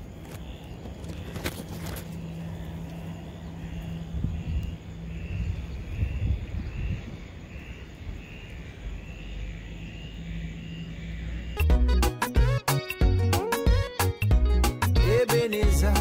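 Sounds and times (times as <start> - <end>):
wind buffeting microphone: 0.0 - 8.8.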